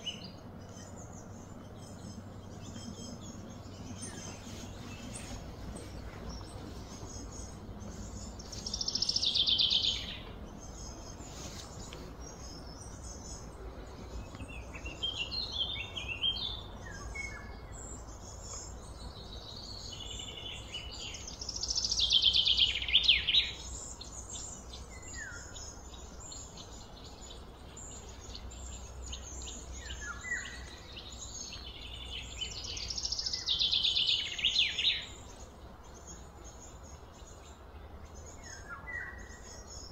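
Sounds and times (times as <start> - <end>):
faint low hum: 0.0 - 22.5.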